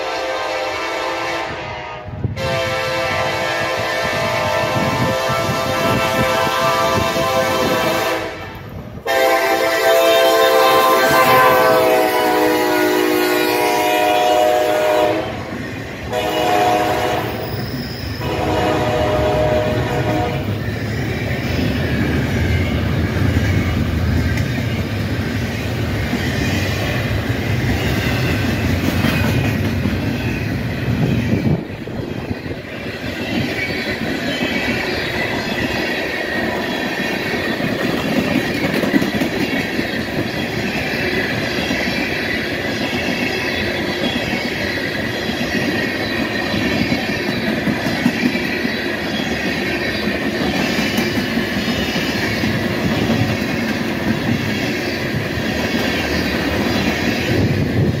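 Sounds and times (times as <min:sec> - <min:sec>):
freight cars rumbling on rails: 0:01.4 - 0:58.0
high wheel squeal: 0:17.3 - 0:18.4.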